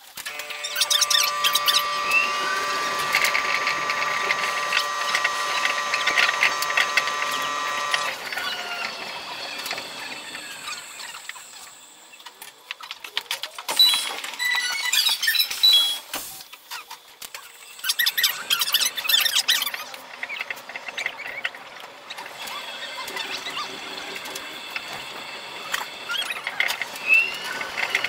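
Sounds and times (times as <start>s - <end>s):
steady high tones: 0.4s - 11.4s.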